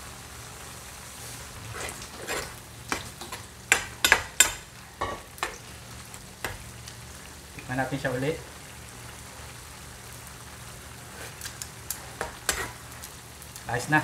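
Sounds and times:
metal spatula scraping pan: 1.6s - 5.2s, 12.1s - 12.8s.

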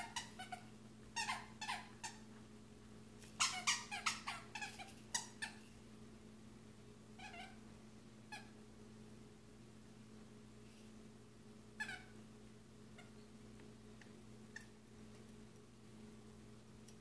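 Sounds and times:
squeaky toy squeaking: 0.0s - 0.6s, 1.2s - 2.2s, 3.4s - 5.6s, 11.8s - 12.1s.

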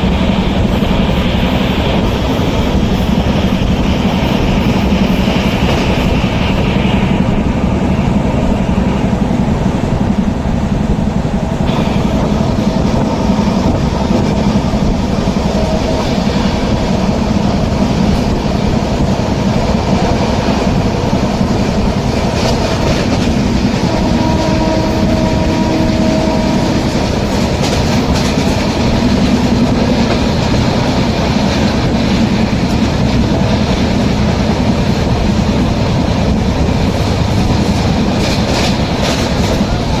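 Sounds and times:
rail joint clicks: 0.0s - 40.0s
train wheels on rails: 0.0s - 40.0s.

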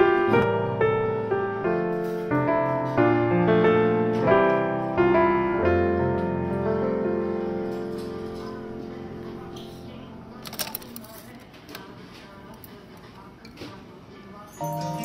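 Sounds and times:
piano chords: 0.0s - 10.7s, 14.6s - 15.0s.

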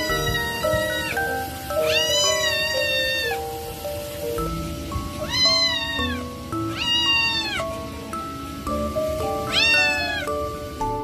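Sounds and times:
cat meowing: 0.0s - 3.4s, 5.2s - 7.8s, 9.4s - 10.4s
background music: 0.0s - 11.0s.

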